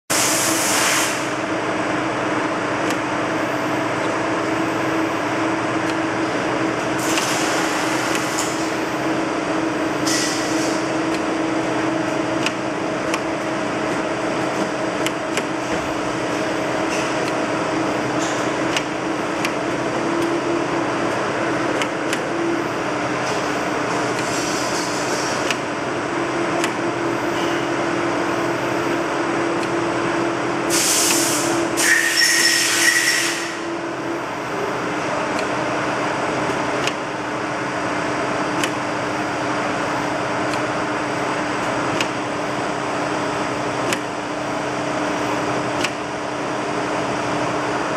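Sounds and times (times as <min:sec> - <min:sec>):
compressed air hisses: 0:00.1 - 0:01.3, 0:30.7 - 0:33.6
steady machine hum: 0:00.1 - 0:47.9.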